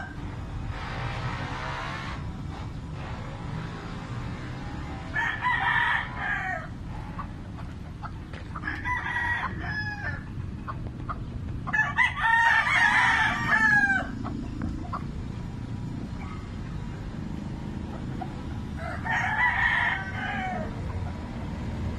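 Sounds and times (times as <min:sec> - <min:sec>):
rooster crowing: 0:05.1 - 0:06.8, 0:08.6 - 0:10.3, 0:11.7 - 0:14.2, 0:18.7 - 0:20.8.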